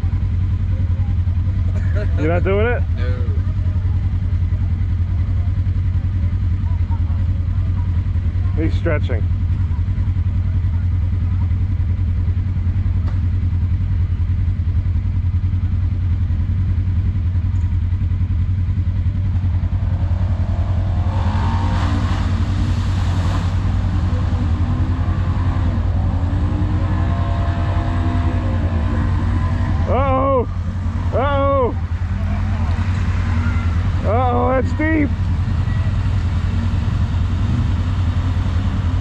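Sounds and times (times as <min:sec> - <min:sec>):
engine idling: 0:00.0 - 0:39.0
engine revving: 0:18.1 - 0:39.0
water splashing: 0:19.5 - 0:34.0.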